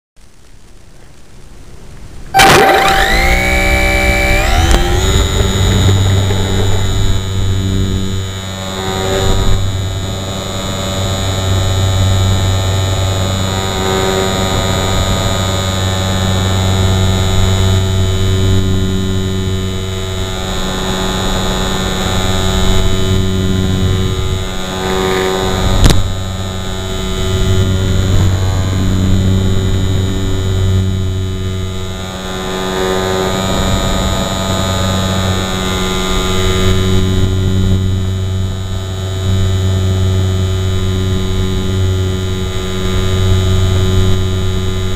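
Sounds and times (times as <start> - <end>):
sharp click: 2.4 - 7.2
model airplane motor droning: 2.4 - 44.9.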